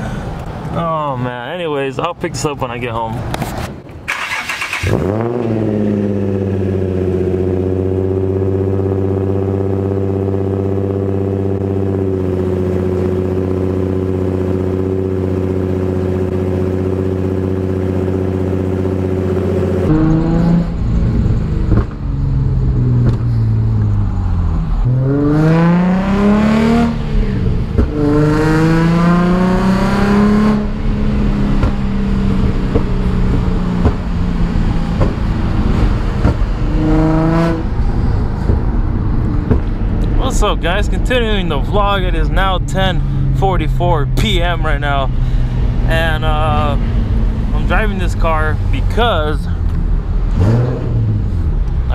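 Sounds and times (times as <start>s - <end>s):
car accelerating and shifting gears: 3.1s - 51.9s
car engine idling: 30.6s - 50.4s.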